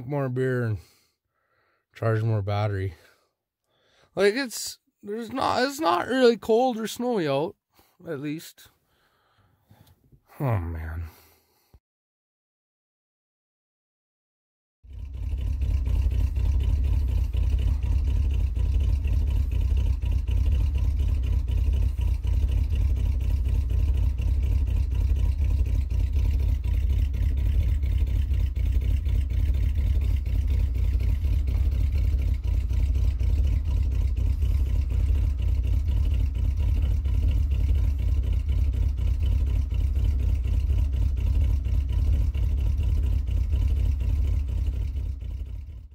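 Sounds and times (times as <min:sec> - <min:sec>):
truck engine idling: 0:14.9 - 0:45.9.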